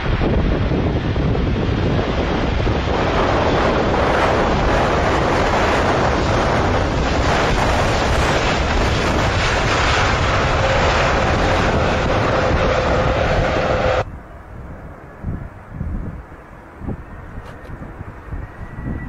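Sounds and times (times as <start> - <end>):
jet engines roaring: 0.0 - 19.0.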